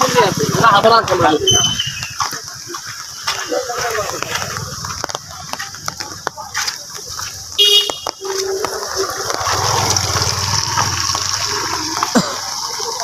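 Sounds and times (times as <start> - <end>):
motorbike passing through water: 0.0 - 1.4, 8.3 - 13.0
rain and floodwater rushing: 0.0 - 13.0.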